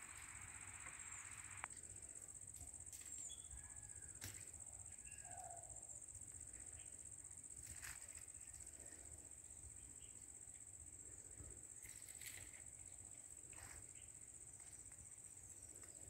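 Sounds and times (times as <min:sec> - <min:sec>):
high-pitched insect drone: 0:00.0 - 0:01.7
soft hiss: 0:00.0 - 0:02.0
bird chirps: 0:03.1 - 0:03.6.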